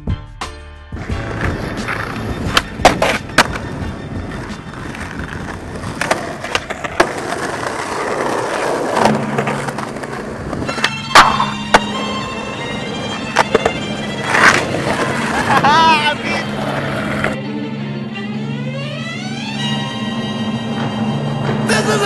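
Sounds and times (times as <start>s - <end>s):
music with droning tone: 0.0s - 22.0s
skateboard wheels rolling on concrete: 0.9s - 17.4s, 19.0s - 22.0s
skateboard clacking: 1.0s - 17.4s.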